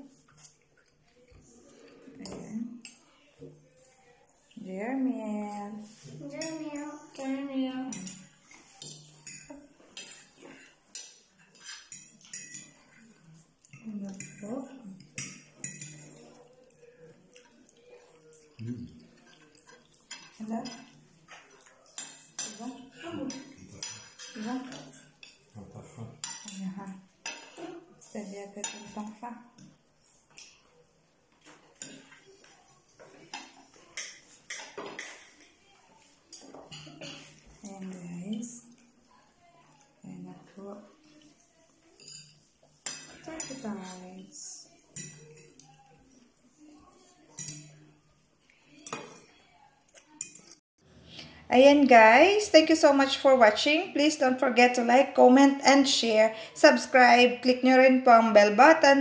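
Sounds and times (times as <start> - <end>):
cutlery clinking on plates: 5.9 - 27.9, 28.6 - 38.0, 41.0 - 44.0, 44.7 - 46.4, 47.2 - 50.6
knife and fork clinking on plate: 15.1 - 16.3, 42.0 - 43.6, 45.0 - 45.7.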